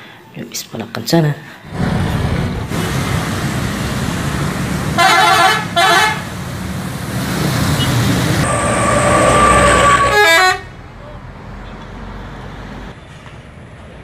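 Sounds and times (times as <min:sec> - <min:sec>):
road traffic rumble: 0:01.7 - 0:14.0
bus horn blasts: 0:05.0 - 0:06.3, 0:08.4 - 0:10.7.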